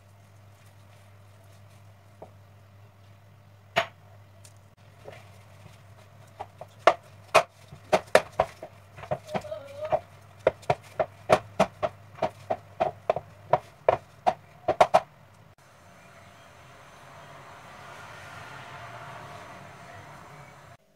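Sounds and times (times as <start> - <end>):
steady low hum: 0.0 - 17.0
sharp knocks and slaps: 3.8 - 4.0, 6.4 - 9.5, 10.4 - 15.1
dough kneaded by hand: 4.7 - 15.1.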